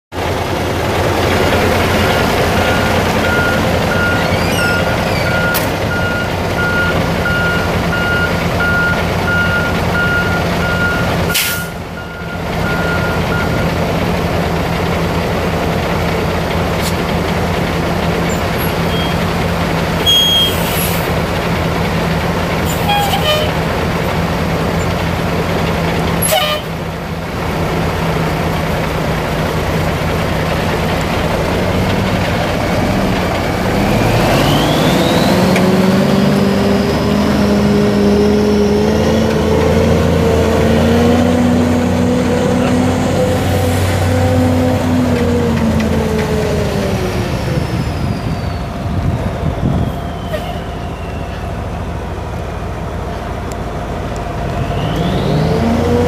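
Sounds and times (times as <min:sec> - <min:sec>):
diesel truck idling: 0:00.1 - 0:56.0
repeated beeping tone: 0:01.9 - 0:13.7.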